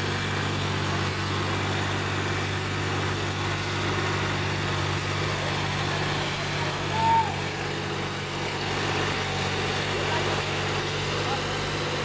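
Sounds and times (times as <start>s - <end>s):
tractor diesel engine running: 0.0s - 12.0s.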